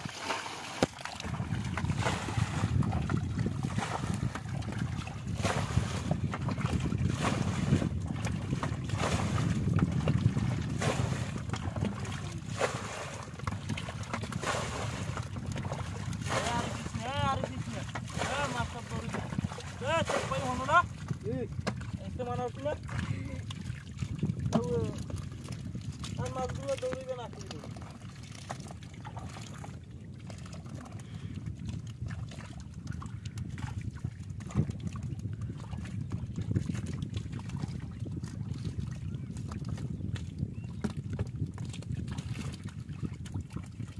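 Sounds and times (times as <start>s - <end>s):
sharp splashes: 0.0s - 4.4s, 5.3s - 6.1s, 10.8s - 13.2s, 14.3s - 15.2s, 16.1s - 20.8s
hands sloshing through muddy water: 0.0s - 20.9s
sloshing in muddy water: 0.0s - 43.9s
wind rumbling on microphone: 0.0s - 43.9s.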